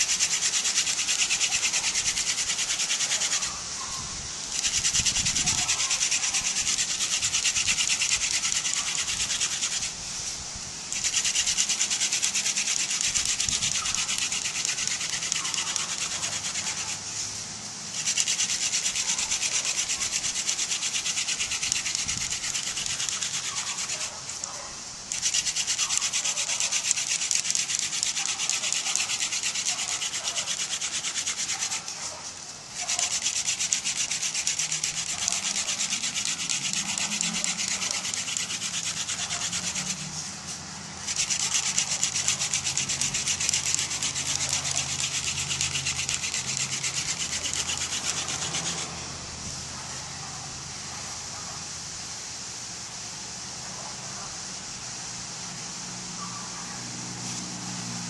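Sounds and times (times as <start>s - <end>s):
wood grinding on wood: 0.0s - 49.5s.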